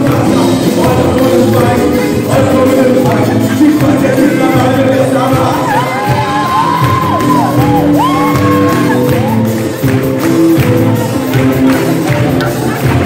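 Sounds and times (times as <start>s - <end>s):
crowd singing along: 0.0s - 6.8s
loud music in a hall: 0.0s - 13.0s
crowd shouting and whooping: 5.1s - 13.0s.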